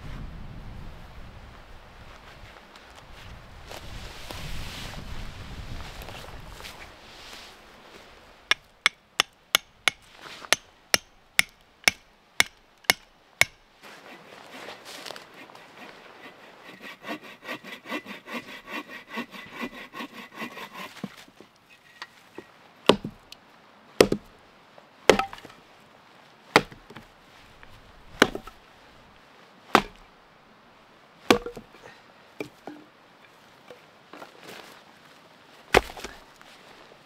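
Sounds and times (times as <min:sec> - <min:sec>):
hatchet splitting log: 0:08.5 - 0:13.6, 0:16.6 - 0:21.2, 0:22.9 - 0:23.3, 0:24.0 - 0:24.3, 0:25.1 - 0:25.6, 0:26.5 - 0:27.1, 0:28.1 - 0:28.6, 0:29.7 - 0:30.1, 0:31.3 - 0:31.8, 0:35.7 - 0:36.2
hand saw cutting branch: 0:08.5 - 0:21.3.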